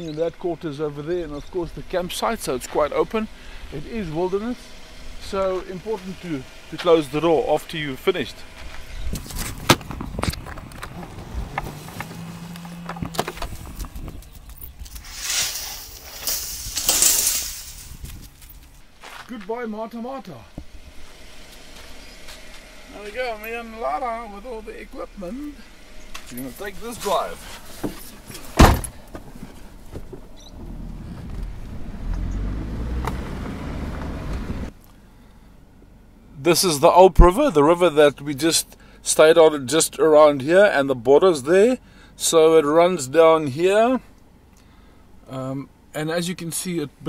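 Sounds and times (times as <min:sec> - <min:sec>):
car engine rumble: 0:00.0 - 0:47.0
tyres on gravel road: 0:00.0 - 0:47.0
vehicle low hum: 0:00.0 - 0:47.0
vehicle door knocks and clunks: 0:09.4 - 0:14.2, 0:27.8 - 0:30.4.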